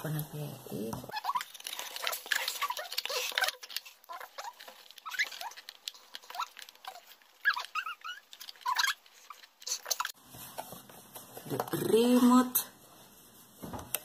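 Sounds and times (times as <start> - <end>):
packaging rustling and scraping: 0.0 - 12.1
small squeaky clicks: 1.1 - 10.2.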